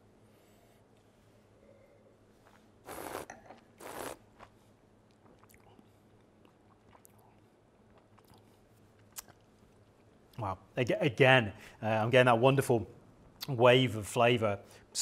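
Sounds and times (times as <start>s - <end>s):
person slurping wine: 2.8s - 4.5s.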